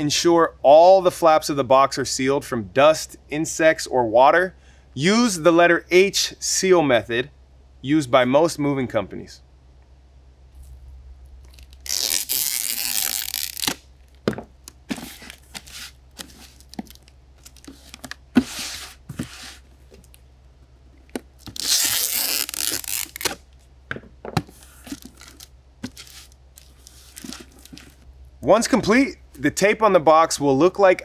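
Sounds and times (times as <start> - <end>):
packing tape tearing screech: 11.5 - 13.9, 21.4 - 23.4.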